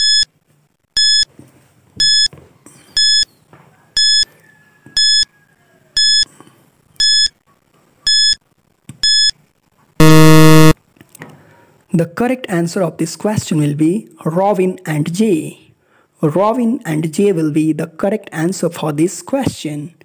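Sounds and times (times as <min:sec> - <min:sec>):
short electronic beeps: 0:00.0 - 0:00.3, 0:03.0 - 0:03.3, 0:08.1 - 0:08.4, 0:09.0 - 0:09.3, 0:10.0 - 0:10.8.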